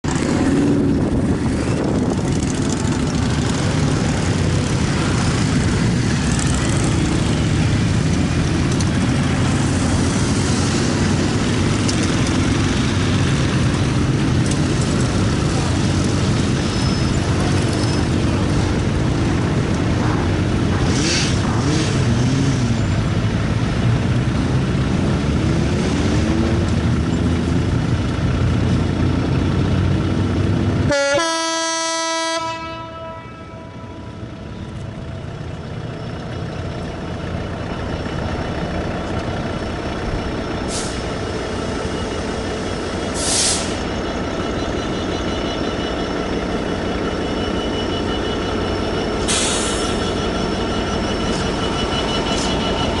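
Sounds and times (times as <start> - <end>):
motorcycles passing: 0.0 - 40.4
diesel locomotive droning: 0.0 - 53.0.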